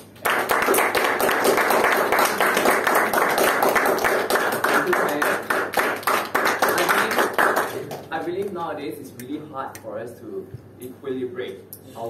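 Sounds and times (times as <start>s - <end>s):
group clapping hands: 0.0s - 8.5s.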